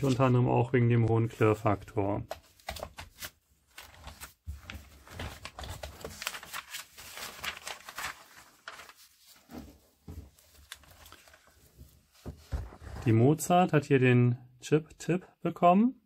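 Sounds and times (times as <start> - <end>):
magazine pages rustling: 1.2 - 13.0.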